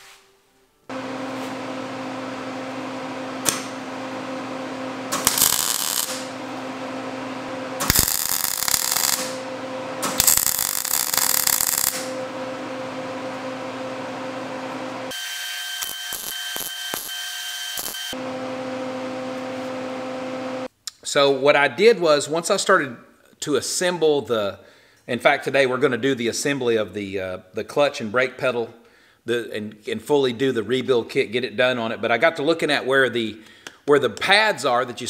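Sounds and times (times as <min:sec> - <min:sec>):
arc welder humming: 0:00.9 - 0:20.7
arc crackle: 0:05.2 - 0:06.3, 0:07.8 - 0:09.4, 0:10.2 - 0:12.2, 0:15.7 - 0:18.2.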